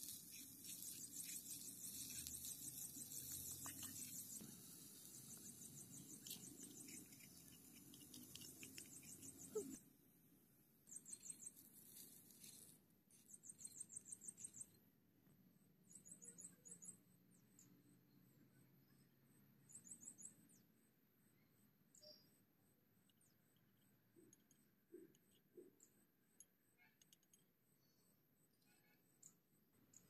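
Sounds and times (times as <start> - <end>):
rapid high-pitched chirping: 0.0 - 9.8.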